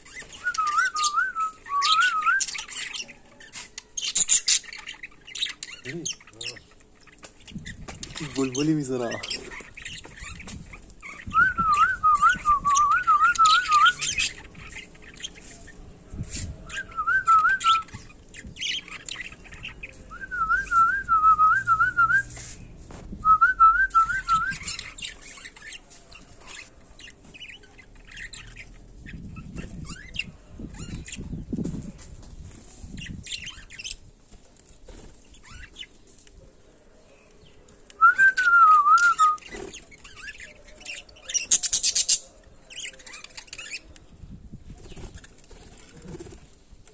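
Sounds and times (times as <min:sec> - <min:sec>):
budgerigars chirping and chattering: 0:00.0 - 0:17.0, 0:17.6 - 0:20.2, 0:24.0 - 0:37.8, 0:39.0 - 0:46.4
person whistling bird-like trills: 0:20.1 - 0:22.4, 0:23.2 - 0:24.7, 0:38.0 - 0:39.5.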